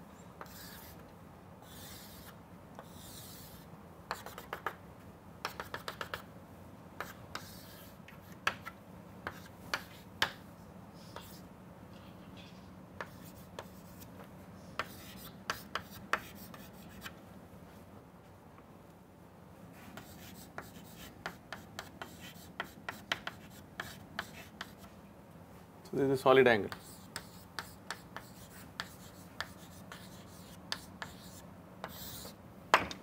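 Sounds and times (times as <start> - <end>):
chalk scratching on chalkboard: 0.4 - 1.0, 1.6 - 4.8, 5.5 - 6.2, 7.0 - 8.7, 9.3 - 10.1, 11.0 - 14.1, 14.8 - 17.1, 19.8 - 24.9, 26.7 - 32.4
chalk tapping on board: 4.1 - 4.8, 5.4 - 6.3, 7.0 - 10.4, 14.8 - 17.1, 20.0 - 24.9, 26.7 - 32.4.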